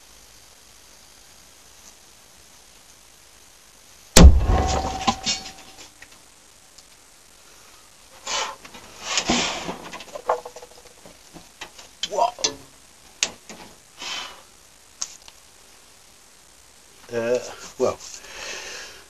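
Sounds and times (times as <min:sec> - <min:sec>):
loud explosion bang: 0:04.2 - 0:05.7.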